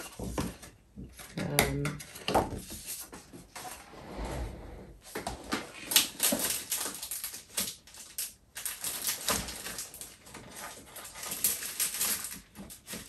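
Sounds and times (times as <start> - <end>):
paper and plastic clicks and knocks: 5.2 - 13.0.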